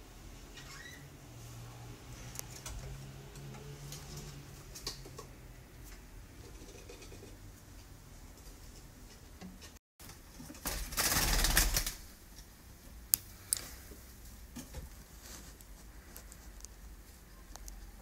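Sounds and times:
small rustles: 0:13.2 - 0:18.0.

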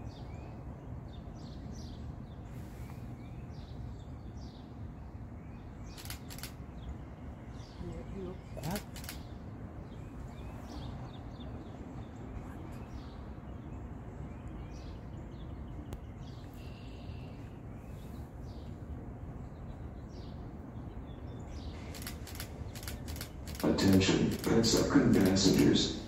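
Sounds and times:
low outdoor rumble: 0:00.0 - 0:26.0
small birds chirping: 0:00.0 - 0:26.0
sharp clicks: 0:05.9 - 0:06.6, 0:08.6 - 0:09.3, 0:21.8 - 0:25.8.

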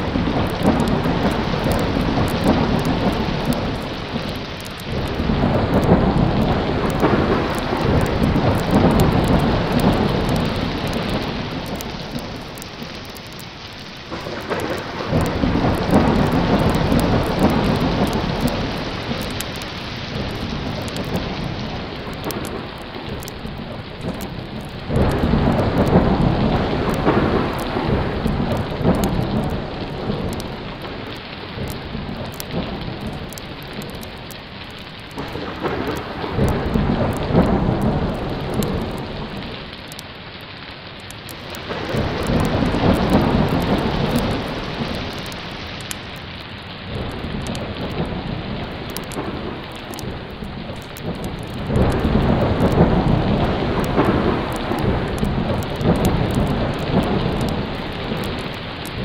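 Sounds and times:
thunder rolling: 0:00.0 - 0:40.0, 0:41.3 - 0:59.0
heavy rain: 0:00.0 - 0:59.0
small sharp ticks: 0:00.4 - 0:21.3, 0:48.9 - 0:59.0.

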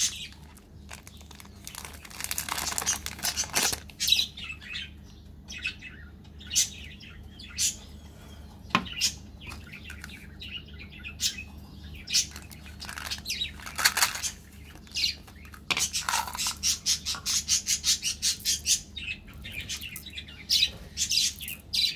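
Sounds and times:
candy rattling in plastic bottle: 0:00.0 - 0:03.9, 0:12.2 - 0:16.8
plastic wrapper crinkling: 0:00.0 - 0:04.0, 0:12.2 - 0:16.7.

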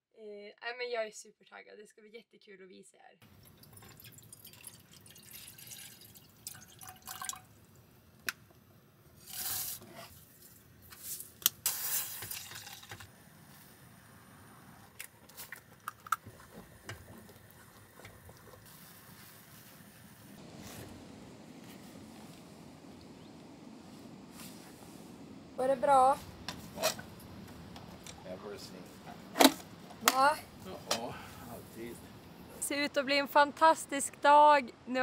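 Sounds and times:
water pouring into a saucepan: 0:03.2 - 0:07.6, 0:12.0 - 0:13.0.

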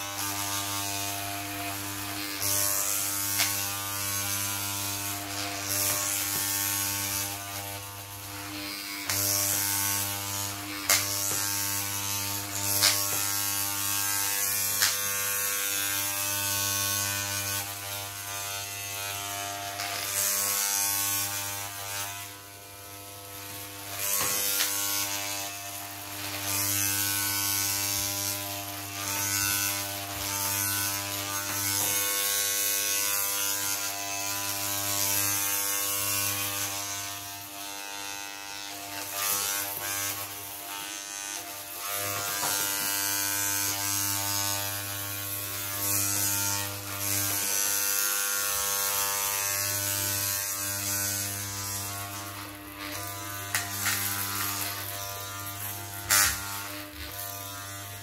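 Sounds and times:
electric hair clippers buzzing: 0:00.0 - 0:58.0.

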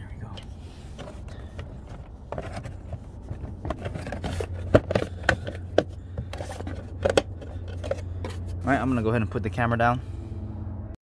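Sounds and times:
plastic scraping and rattling: 0:00.8 - 0:08.7.

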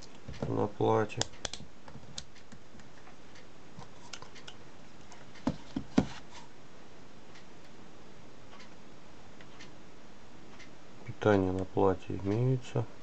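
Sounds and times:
light ticks: 0:01.2 - 0:01.6.

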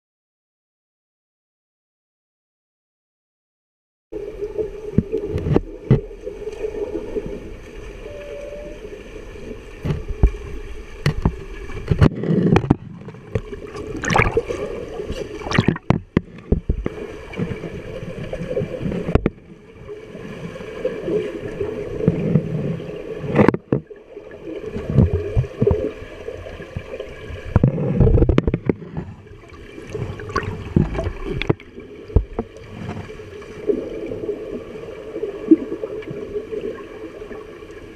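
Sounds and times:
muffled churning water and bubbles: 0:04.2 - 0:37.9
underwater thumps of swimmers: 0:09.8 - 0:17.7, 0:29.9 - 0:33.1.

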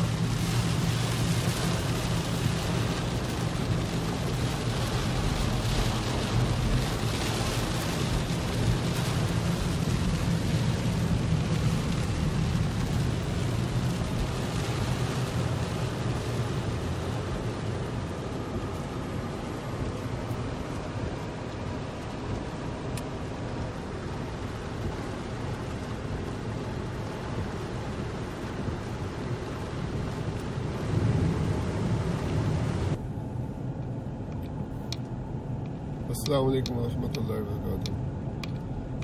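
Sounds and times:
car low hum: 0:00.0 - 0:39.0
heavy rain on a car roof: 0:00.0 - 0:39.0.

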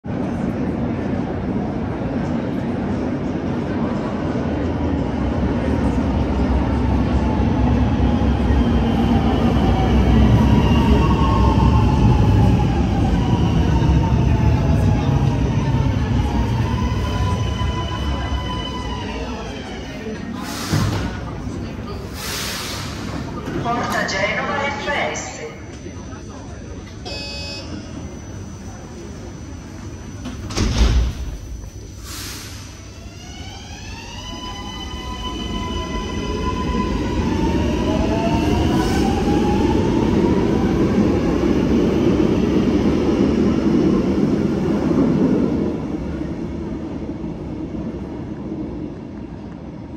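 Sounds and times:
faint train whine: 0:00.1 - 0:49.9
train doors thudding shut: 0:30.2 - 0:31.6.

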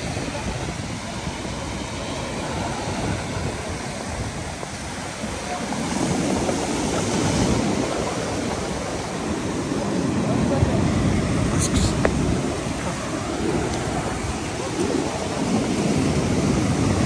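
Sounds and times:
surf washing over concrete slipway: 0:00.0 - 0:17.0.

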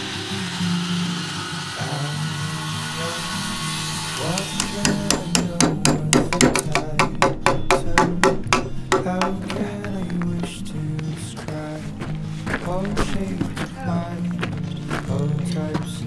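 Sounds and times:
hammer striking chisel on wood: 0:04.2 - 0:09.7.

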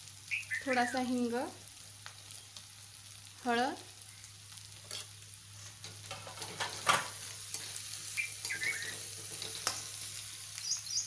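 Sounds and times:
onions sizzling in oil: 0:00.0 - 0:11.0
spatula scraping pan: 0:04.8 - 0:10.2.

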